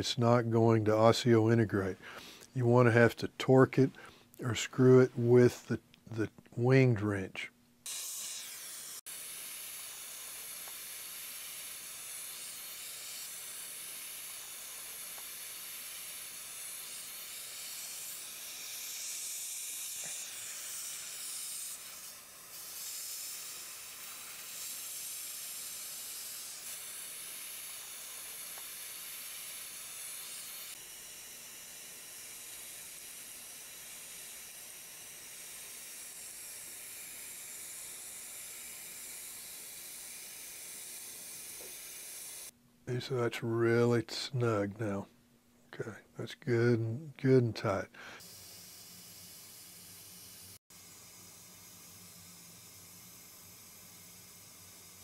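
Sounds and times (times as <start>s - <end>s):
dental suction hiss: 1.9s - 2.6s, 7.8s - 43.2s, 47.2s - 55.0s.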